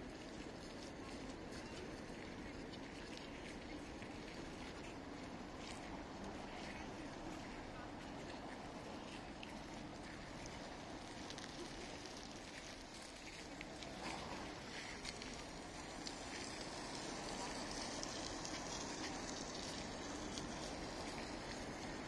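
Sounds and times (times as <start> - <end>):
small clicks and crackles: 0.0 - 22.0
steady background hiss: 0.0 - 22.0.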